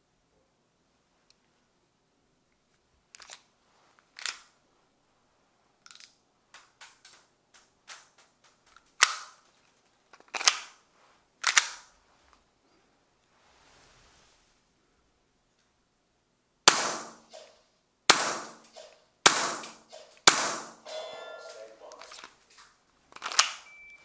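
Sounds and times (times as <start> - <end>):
airsoft pistol shots: 16.7 - 21.1.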